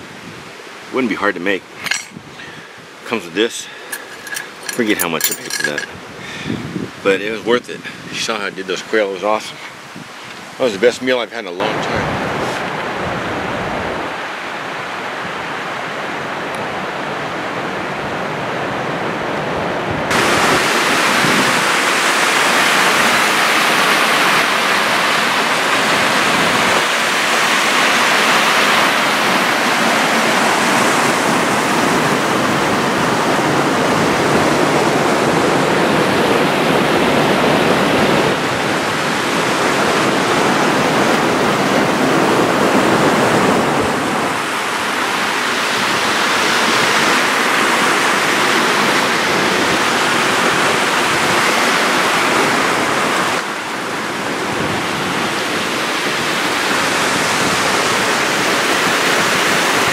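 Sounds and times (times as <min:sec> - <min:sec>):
water rushing over rocks: 0:00.0 - 0:06.1, 0:20.1 - 0:59.9.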